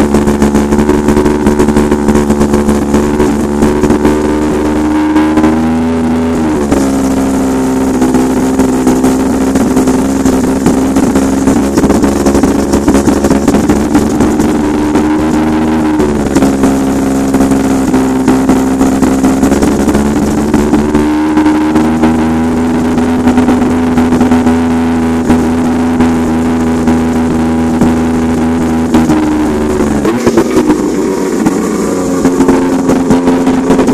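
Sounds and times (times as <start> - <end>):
rotary engine idling: 6.6 - 24.4, 25.2 - 33.9.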